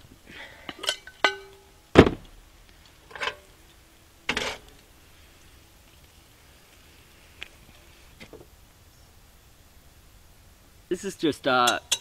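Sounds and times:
cast iron cookware clanking: 0.8s - 1.6s, 11.6s - 12.0s.

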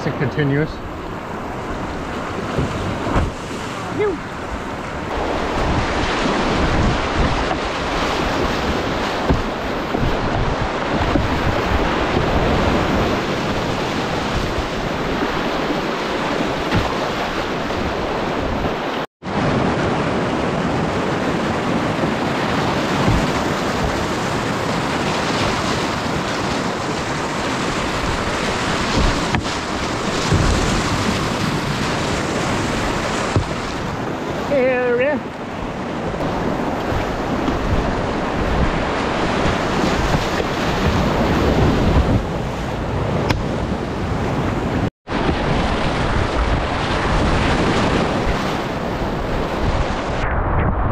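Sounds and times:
rushing whitewater: 0.0s - 43.6s, 44.4s - 50.1s
low thumps: 2.4s - 3.4s, 6.6s - 12.5s, 23.0s - 23.9s.

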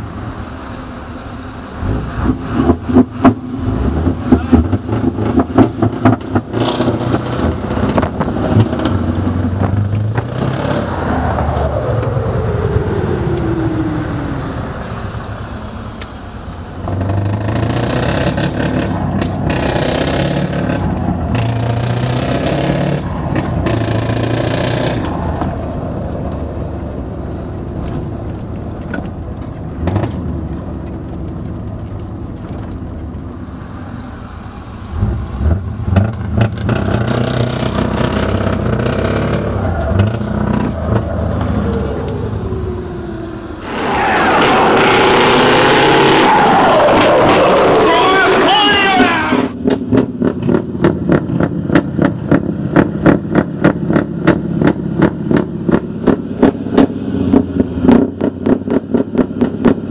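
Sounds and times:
truck engine: 0.0s - 59.9s
exhaust crackling: 34.5s - 59.8s
turbo whine: 43.6s - 48.3s.

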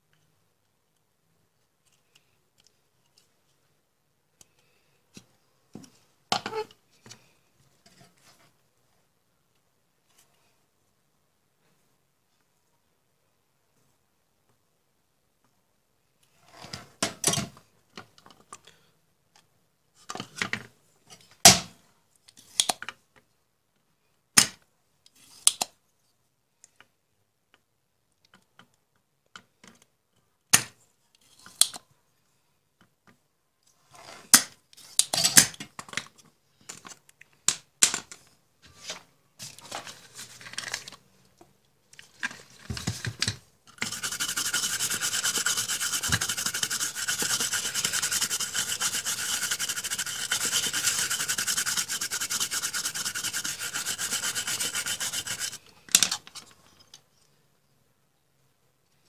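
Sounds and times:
brisk scrubbing on circuit board: 43.7s - 55.6s
short scrape: 43.8s - 55.6s.

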